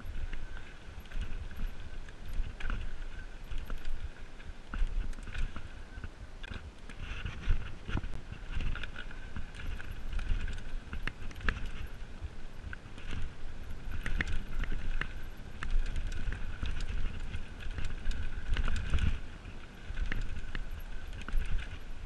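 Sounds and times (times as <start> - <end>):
bike chain and frame clattering: 0.0 - 6.0, 7.0 - 22.0
bike tyres rolling over dirt: 0.0 - 22.0.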